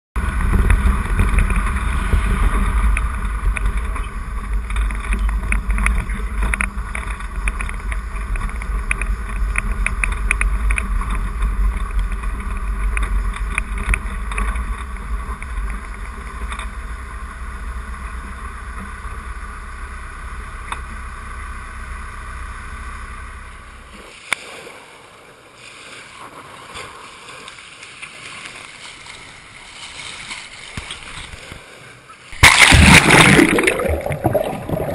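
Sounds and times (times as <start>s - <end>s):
wind buffeting: 0.2s - 17.3s
vehicle engine rumble: 0.2s - 26.3s
gravel crackling under tyres: 0.2s - 34.9s
water at pebble beach: 0.2s - 34.9s
water splashing: 23.9s - 34.9s.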